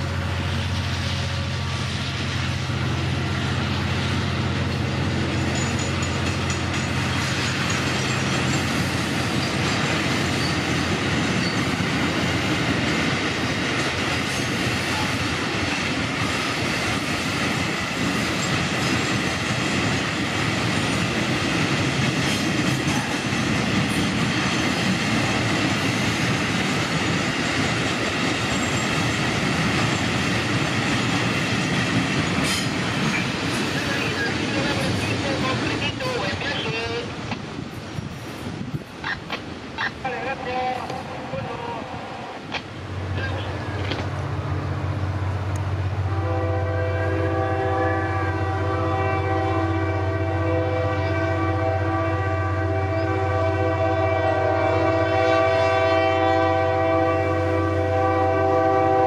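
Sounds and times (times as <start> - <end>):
train wheels rumbling on rail: 0.0 - 59.0
wheels clicking over rail joints: 4.6 - 36.1, 42.4 - 44.3.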